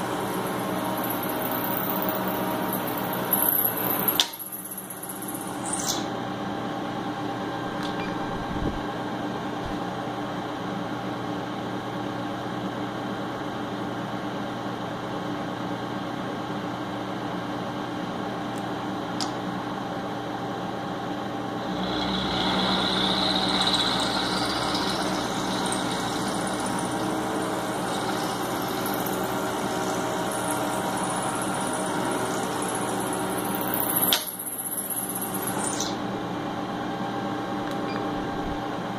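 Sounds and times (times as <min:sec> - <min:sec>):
milling machine humming: 0:00.0 - 0:06.1, 0:21.3 - 0:36.7.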